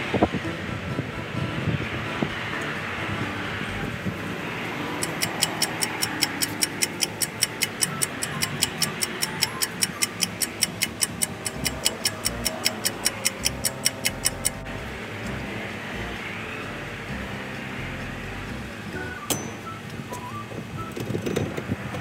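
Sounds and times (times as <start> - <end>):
rapid clock-like ticking: 4.8 - 14.7.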